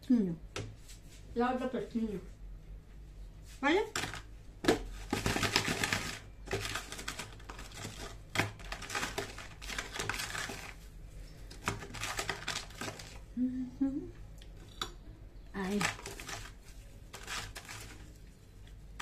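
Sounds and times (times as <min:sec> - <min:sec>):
pastries rubbed in sugar: 0:15.6 - 0:18.5.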